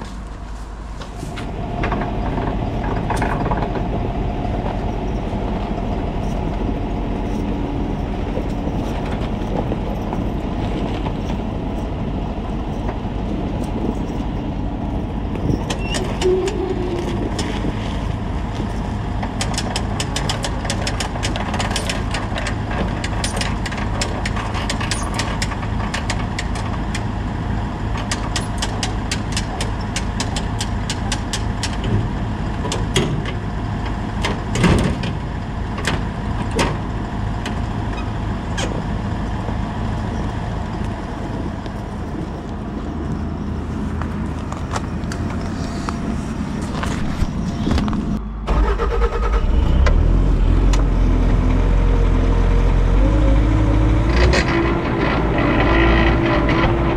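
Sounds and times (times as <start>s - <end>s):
engine running steadily: 0.0s - 56.9s
sharp clanks and knocks: 1.0s - 11.9s, 15.3s - 27.2s, 27.9s - 38.9s.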